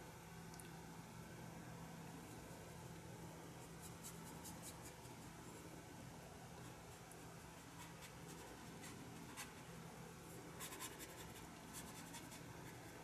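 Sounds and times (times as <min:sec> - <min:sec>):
low steady hum: 0:00.0 - 0:13.0
paintbrush scratching on paper: 0:03.5 - 0:05.4, 0:06.6 - 0:09.7, 0:10.4 - 0:13.0.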